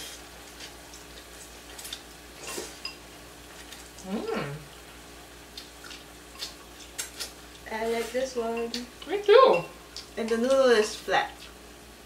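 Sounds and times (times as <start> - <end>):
person humming mmm: 4.0 - 4.7.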